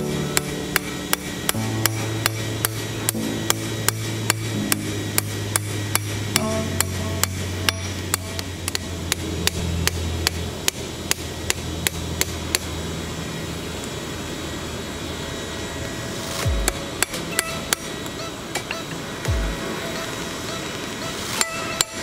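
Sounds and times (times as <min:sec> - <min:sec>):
hammer striking hot metal on anvil: 0:00.0 - 0:12.8.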